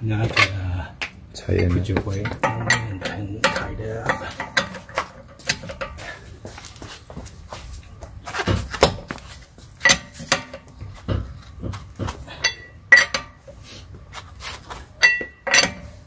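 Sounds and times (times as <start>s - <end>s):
lug wrench clinking on metal: 0.3s - 6.2s, 9.8s - 13.6s, 14.9s - 16.0s
dull thumps: 8.0s - 13.4s.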